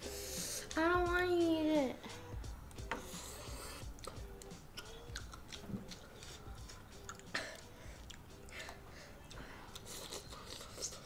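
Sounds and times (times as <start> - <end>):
noodles chewed and slurped: 4.8 - 8.8, 9.7 - 11.0.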